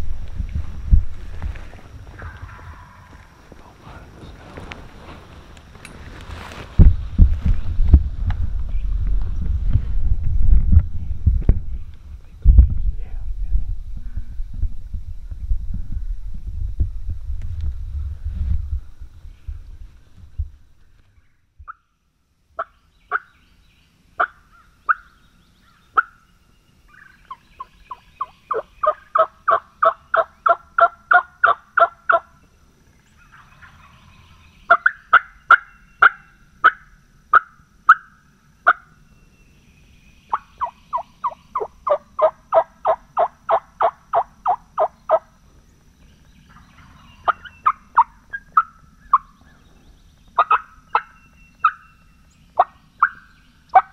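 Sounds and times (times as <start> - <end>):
turkey call yelping: 27.0 - 32.3, 34.7 - 38.9, 40.3 - 45.2, 46.8 - 49.4, 50.4 - 51.9, 52.6 - 53.9.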